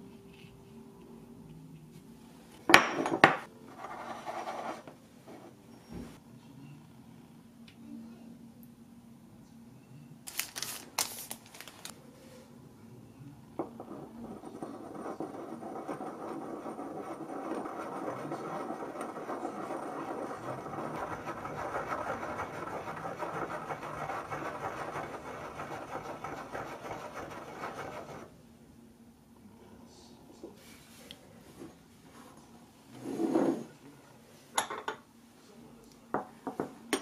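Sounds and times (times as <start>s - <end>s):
ink stick scraping on dish: 13.6s - 28.3s.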